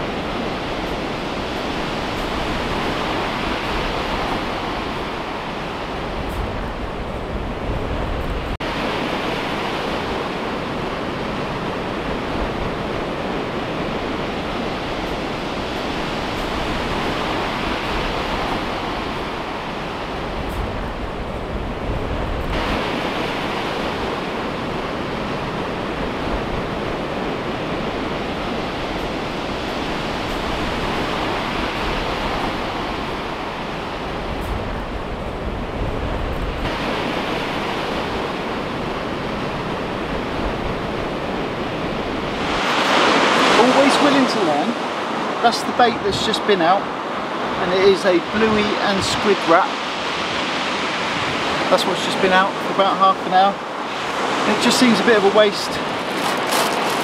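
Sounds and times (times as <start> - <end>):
surf breaking on shingle: 55.9 - 57.0.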